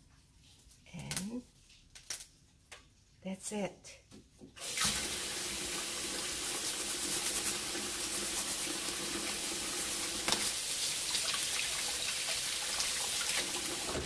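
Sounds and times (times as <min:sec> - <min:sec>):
faucet water splashing: 0:04.6 - 0:14.0.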